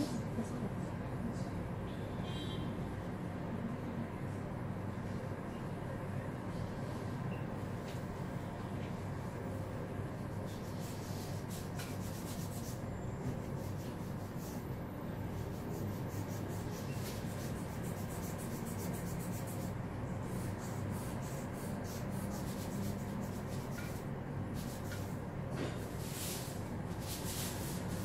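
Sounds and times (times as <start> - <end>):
soft rubbing: 25.9 - 28.0.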